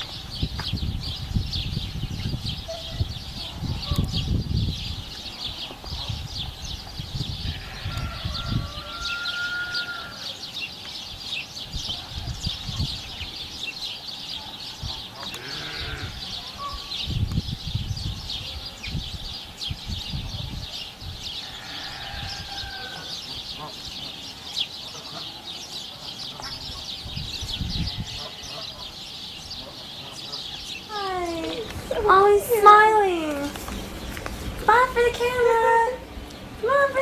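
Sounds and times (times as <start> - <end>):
high animal chatter: 7.4 - 10.4, 14.7 - 17.0, 20.3 - 37.0
pitched animal call: 15.3 - 16.9
low rumbling bumps on microphone: 31.5 - 32.1, 33.2 - 35.4.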